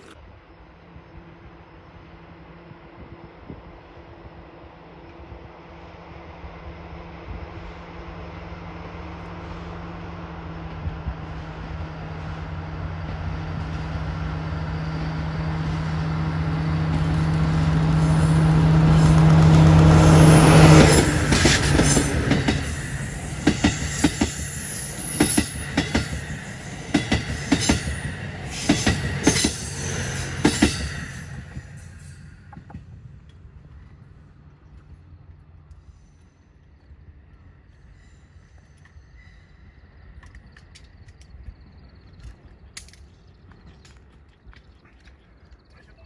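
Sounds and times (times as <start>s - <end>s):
diesel locomotive engine drone: 0.0s - 46.0s
train wheels clacking over rail joints: 18.9s - 33.4s.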